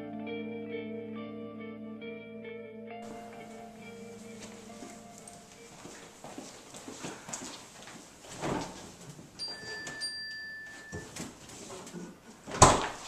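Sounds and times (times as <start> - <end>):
light footsteps: 3.0 - 10.1.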